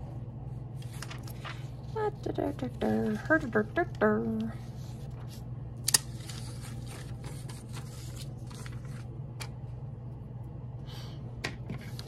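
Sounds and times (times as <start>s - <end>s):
steady low hum: 0.0s - 12.0s
paper rustling and crinkling: 0.8s - 3.6s, 4.3s - 9.1s.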